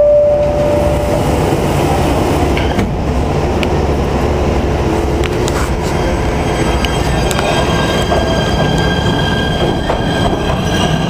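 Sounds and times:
train motors and wheels rumbling: 0.0 - 11.0.

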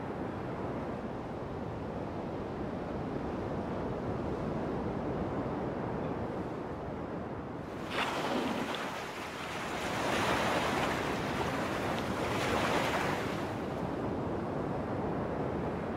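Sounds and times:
ocean waves washing: 7.7 - 14.0.

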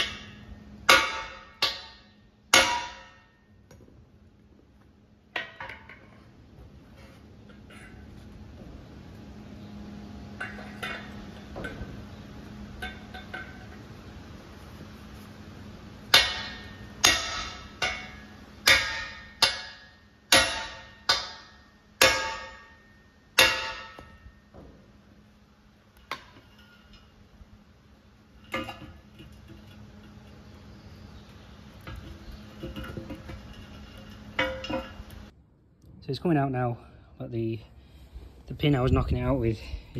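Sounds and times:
sledgehammer striking steel punch: 16.1 - 24.3.

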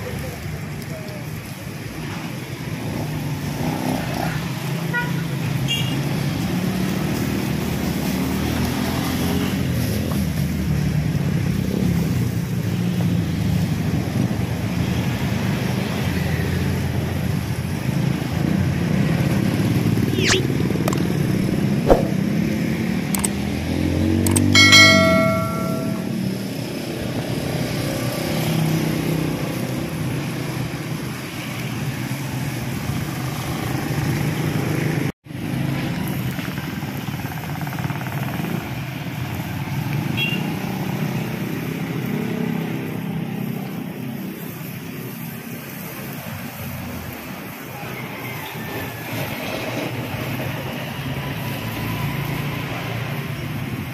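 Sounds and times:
motorcycles and cars passing: 0.0 - 53.9
brief pitched beep: 20.2 - 20.4.

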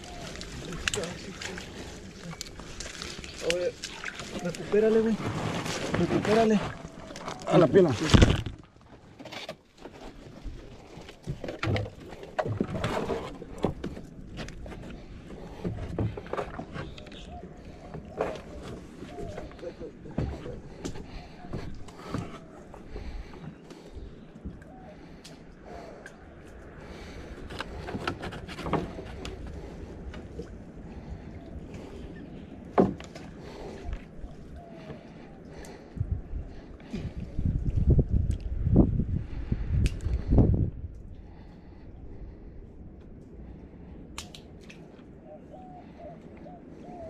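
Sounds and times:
branches rustling and cracking: 0.0 - 19.7
rustling of branches: 0.0 - 40.4
wind rumble on microphone: 25.8 - 45.2.

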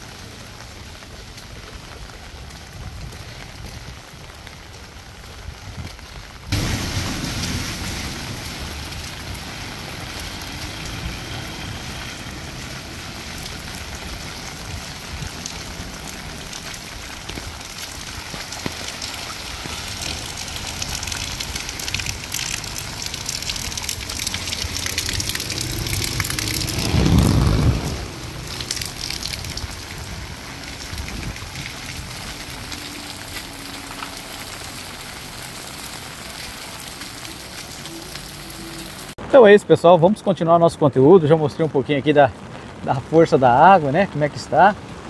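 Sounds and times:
steady rain falling: 0.0 - 45.0
surf washing in: 6.5 - 17.0, 23.6 - 31.5.

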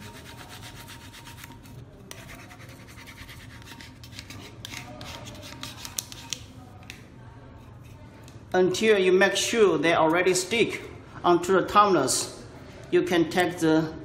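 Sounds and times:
rubbing and scraping on tape: 0.0 - 6.5.

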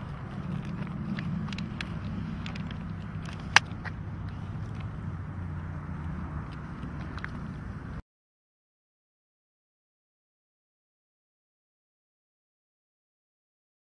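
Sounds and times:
vehicle engine rumbling: 0.0 - 8.0.

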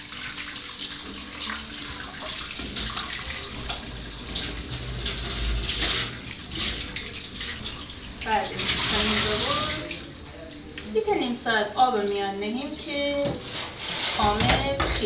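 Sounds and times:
tap running into sink: 1.0 - 7.4.

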